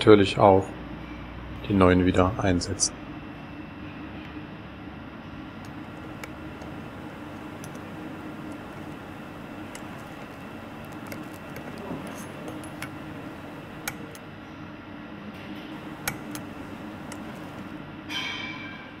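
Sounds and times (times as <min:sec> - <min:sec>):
steady low hum: 0:05.2 - 0:14.5, 0:15.6 - 0:17.9
hand tool metallic clicks and taps: 0:05.6 - 0:14.2, 0:15.8 - 0:17.7.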